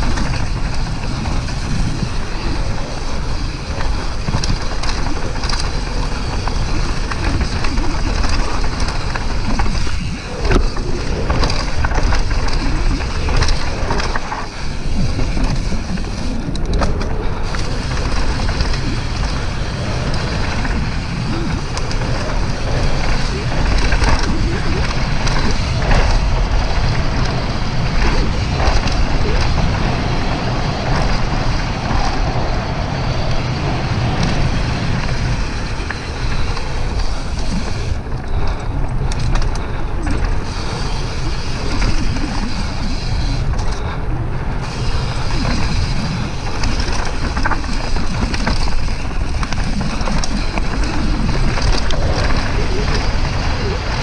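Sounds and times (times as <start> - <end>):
bike knocking and rattling: 0.0 - 54.0
tyres rolling on dirt: 0.0 - 54.0
wind on microphone: 0.0 - 54.0.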